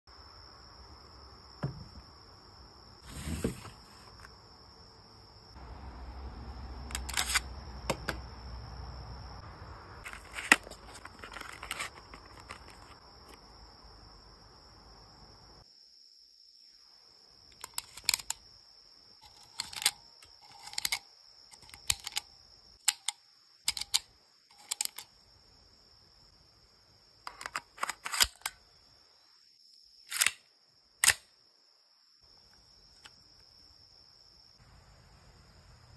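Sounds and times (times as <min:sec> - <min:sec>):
metallic clicks of cartridges: 0:06.9 - 0:08.2, 0:17.5 - 0:18.4, 0:19.2 - 0:25.2, 0:27.2 - 0:28.6, 0:30.1 - 0:30.4, 0:31.0 - 0:31.2.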